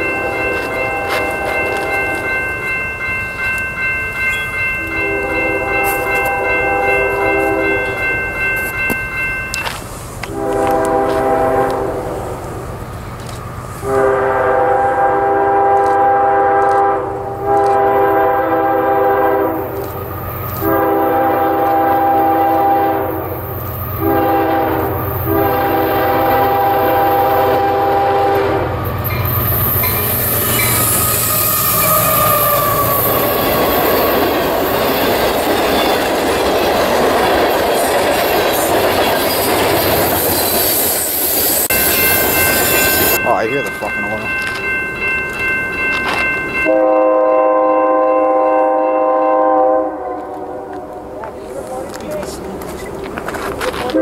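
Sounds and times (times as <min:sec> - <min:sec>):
train air horn blasts: 0:00.0 - 0:02.3, 0:04.8 - 0:08.0, 0:10.2 - 0:12.4, 0:13.8 - 0:19.8, 0:20.6 - 0:23.4, 0:24.0 - 0:33.9, 0:46.6 - 0:51.0.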